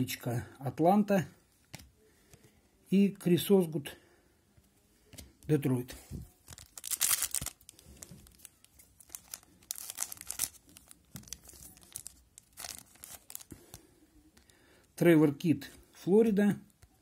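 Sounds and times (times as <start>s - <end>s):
foil wrapper crinkling: 6.4s - 13.6s.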